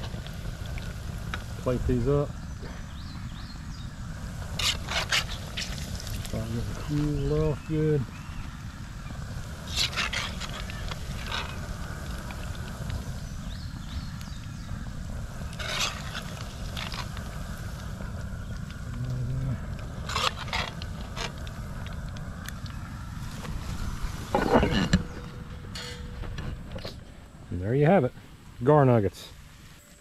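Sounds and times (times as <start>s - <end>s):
food sizzling in hot oil: 0.0s - 26.2s
metal skimmer scraping a pot: 4.6s - 5.8s, 9.7s - 11.6s, 20.0s - 21.4s, 23.7s - 27.0s.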